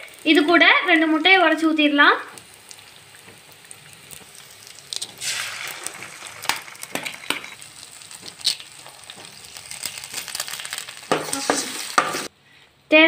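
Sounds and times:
masala frying in oil: 0:00.0 - 0:12.3
eggs cracking into pan: 0:02.3 - 0:12.3.

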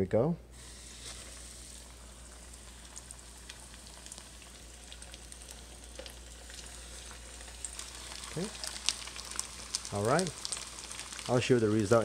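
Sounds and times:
fish deep-frying in hot oil: 0:00.6 - 0:12.0
oil crackling and popping: 0:00.6 - 0:12.0.

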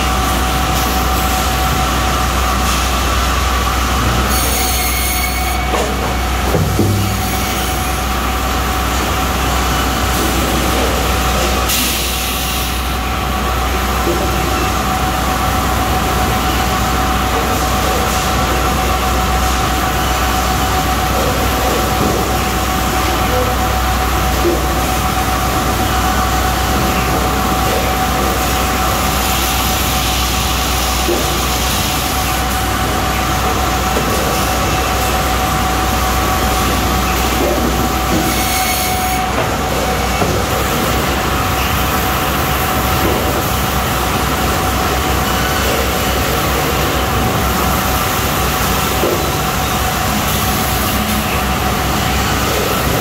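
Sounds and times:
conveyor machine hum: 0:00.0 - 0:53.0
wood knocking on conveyor: 0:05.4 - 0:09.4, 0:20.4 - 0:23.6, 0:24.2 - 0:25.5, 0:30.4 - 0:32.5, 0:33.2 - 0:53.0.

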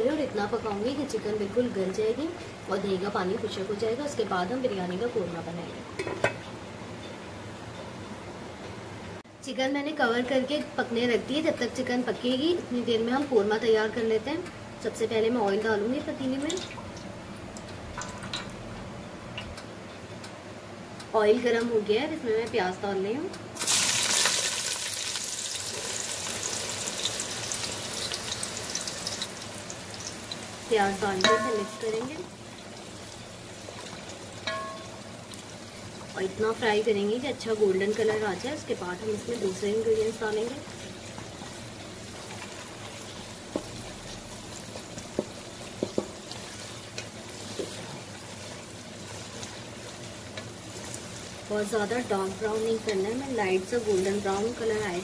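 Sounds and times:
onions sizzling in hot oil: 0:00.0 - 0:07.0, 0:23.6 - 0:55.0
spatula knocking against pot: 0:31.2 - 0:32.1.

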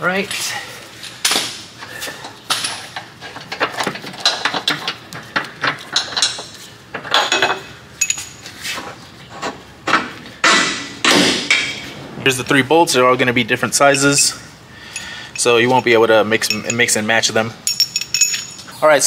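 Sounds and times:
metal bolts clinking: 0:05.6 - 0:08.4, 0:13.8 - 0:18.8.

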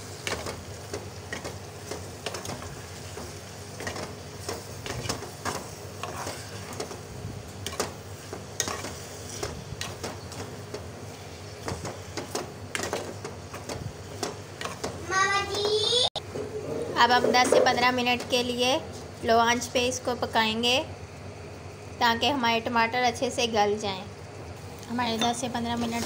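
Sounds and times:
frying sizzle: 0:00.0 - 0:16.2.

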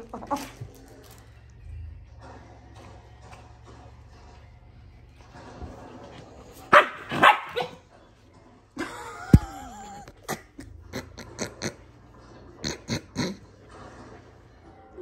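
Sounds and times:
dogs growling: 0:00.0 - 0:15.0
dogs barking: 0:06.2 - 0:08.0.

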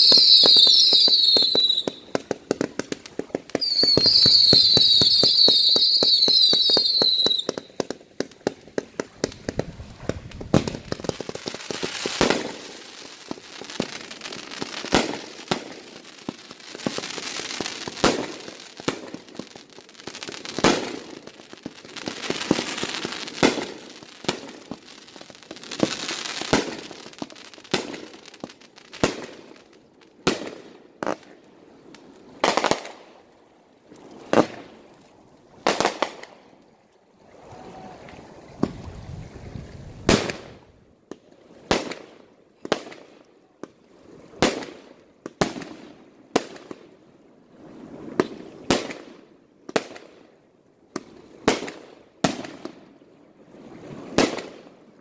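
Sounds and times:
fireworks bangs: 0:00.0 - 0:29.6, 0:40.0 - 0:40.7
fireworks crackling: 0:00.0 - 0:34.8, 0:35.5 - 0:36.4, 0:37.4 - 0:43.2.

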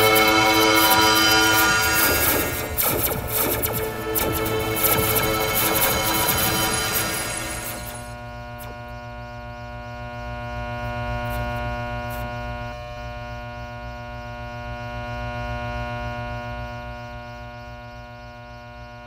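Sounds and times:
low pulsing throb: 0:00.0 - 0:10.4
ambient electronic drone: 0:00.0 - 0:11.2.

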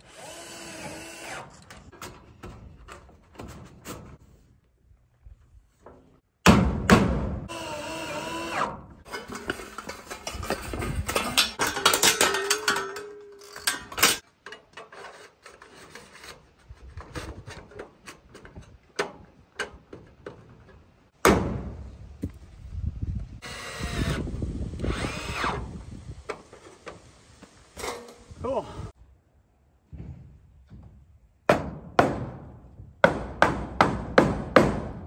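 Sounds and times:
handling clicks and knocks: 0:09.1 - 0:14.9
cordless drill motor whine: 0:23.4 - 0:25.7.

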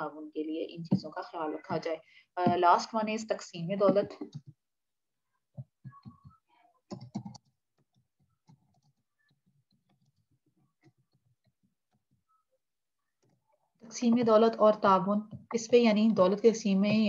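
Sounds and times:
computer keyboard typing: 0:05.9 - 0:12.1.

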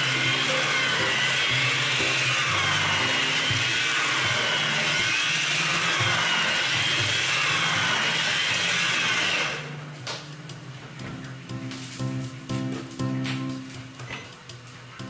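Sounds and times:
electric mixer whining: 0:00.0 - 0:09.9
soft guitar music: 0:09.9 - 0:15.0.

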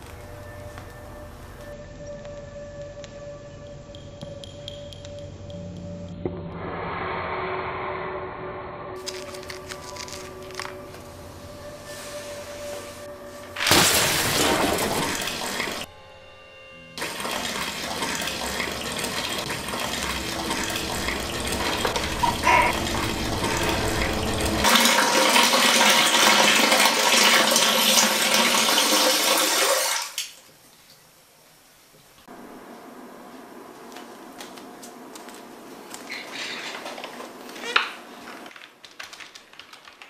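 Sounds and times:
loud even rushing noise: 0:06.4 - 0:09.1.

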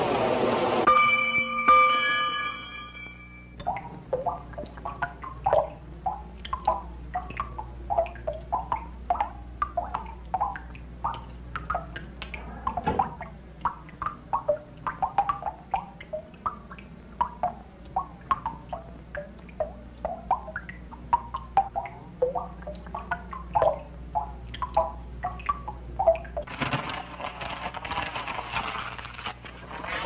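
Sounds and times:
steady low hum: 0:00.0 - 0:30.0
water dripping: 0:03.5 - 0:26.5.

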